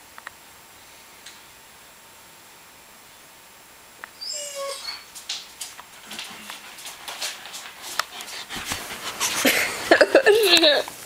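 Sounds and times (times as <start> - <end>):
dog whimpering: 4.2 - 5.1
clicks and rustling: 5.0 - 9.6.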